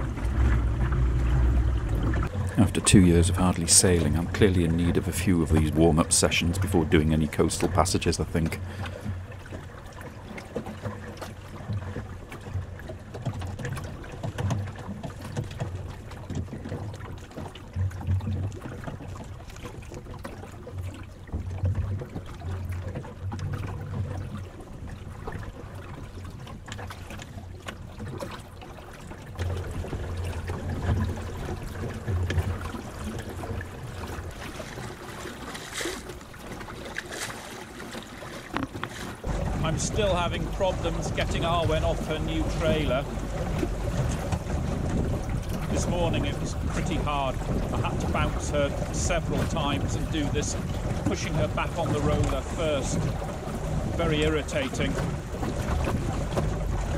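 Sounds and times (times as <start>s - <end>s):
water lapping on wooden hull: 0.0s - 56.9s
water splashes: 0.0s - 56.9s
wind buffeting microphone: 38.5s - 56.9s.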